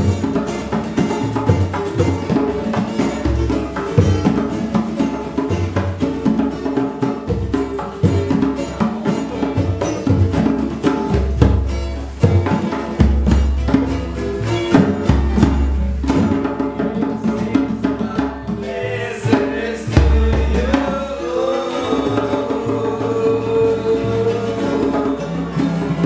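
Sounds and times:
drums: 0.0s - 26.0s
person singing: 17.1s - 25.9s.

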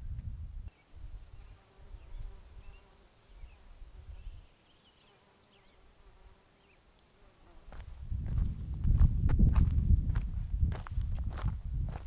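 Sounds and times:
flying insect buzzing: 1.2s - 8.4s
bird chirps: 8.2s - 9.4s.

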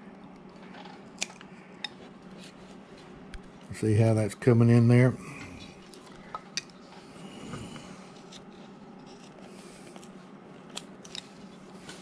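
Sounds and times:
knife carving wood: 8.2s - 9.4s.

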